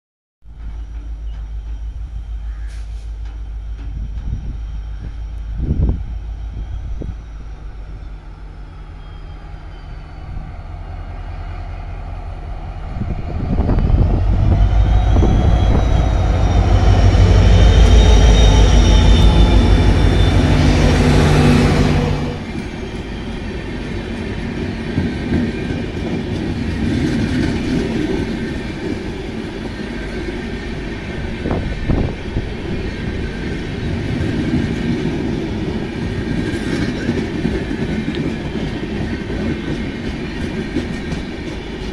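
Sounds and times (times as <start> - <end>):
diesel locomotive engine rumble: 0.4 - 41.9
high whine: 0.5 - 25.8
train wheels clickety-clack: 21.6 - 32.2, 33.1 - 41.9.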